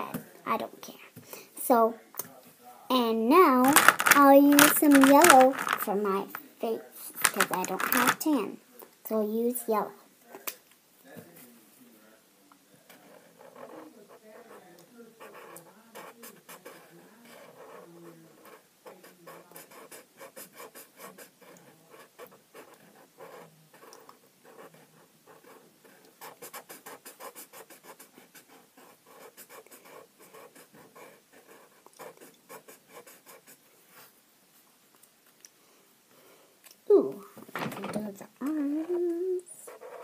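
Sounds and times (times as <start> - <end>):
marker scribbling on paper: 12.9 - 33.6, 39.7 - 40.0.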